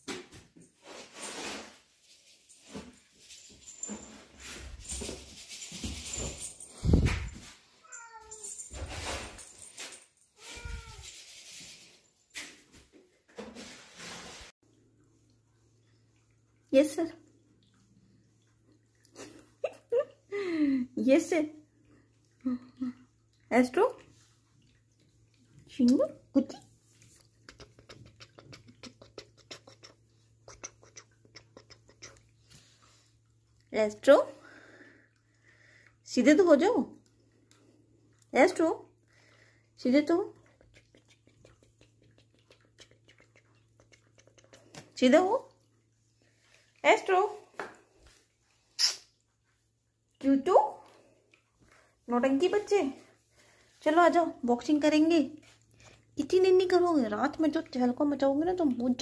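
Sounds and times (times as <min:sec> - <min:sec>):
cat meowing: 0:07.8 - 0:08.4, 0:10.4 - 0:11.1.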